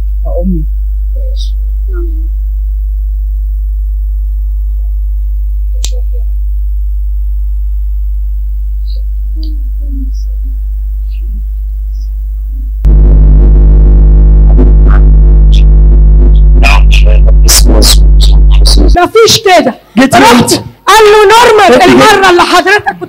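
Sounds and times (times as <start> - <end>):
electrical mains hum: 0.0 - 22.9.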